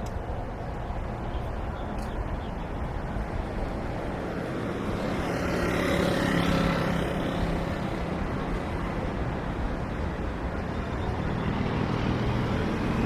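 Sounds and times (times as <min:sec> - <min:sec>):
background traffic noise: 0:00.0 - 0:13.0
vehicle passing close by: 0:03.2 - 0:13.0.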